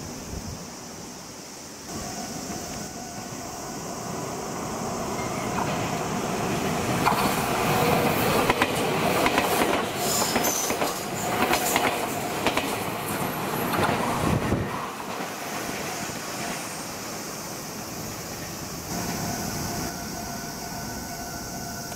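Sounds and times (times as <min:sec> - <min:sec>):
electric train passing: 0:00.0 - 0:21.9
wheels clacking over rail joints: 0:05.1 - 0:14.1.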